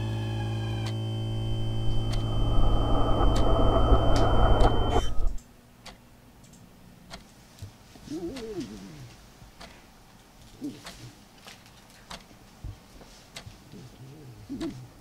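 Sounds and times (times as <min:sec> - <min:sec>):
music with sustained chords: 0:00.0 - 0:05.2
faint clicks: 0:03.2 - 0:07.7.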